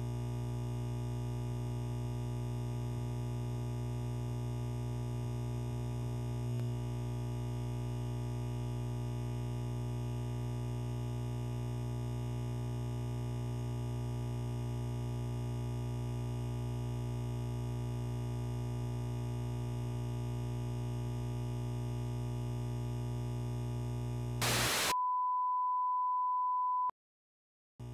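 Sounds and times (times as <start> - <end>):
burst of static: 24.4 - 25.0
high pure beep tone: 24.4 - 26.9.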